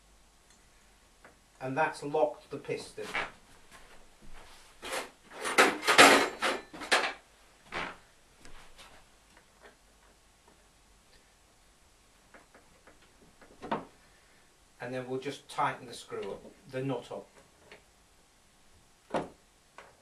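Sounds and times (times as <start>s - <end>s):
hand tools clattering on wood: 4.8s - 7.2s.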